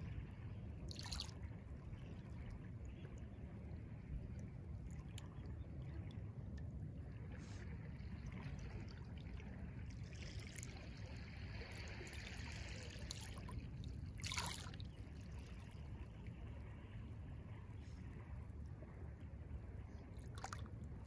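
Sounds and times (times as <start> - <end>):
steady low rumble: 0.0 - 21.0
wavelets lapping at shoreline: 7.4 - 16.8.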